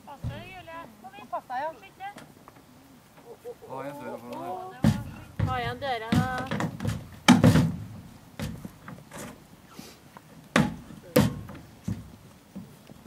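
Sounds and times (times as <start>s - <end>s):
heavy thumps on horse trailer: 0.2s - 0.8s, 4.8s - 9.5s, 10.5s - 12.8s.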